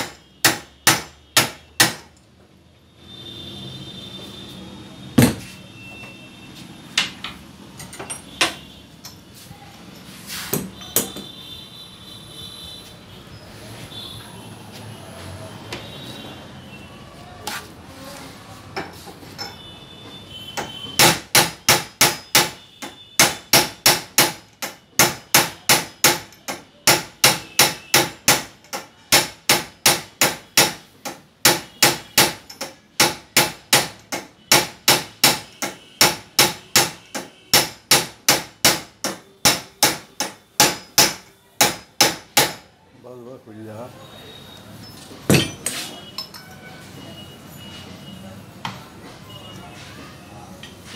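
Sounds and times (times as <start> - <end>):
metal-on-metal hammering: 0.0 - 2.3, 5.2 - 5.5, 7.0 - 9.2, 10.5 - 11.4, 20.5 - 42.7, 45.2 - 46.6.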